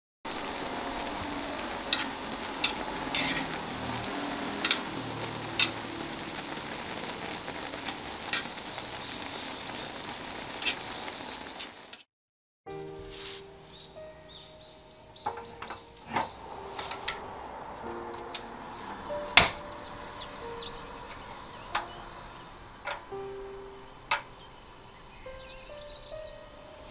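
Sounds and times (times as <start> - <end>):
broth boiling and bubbling: 0.3 - 12.0.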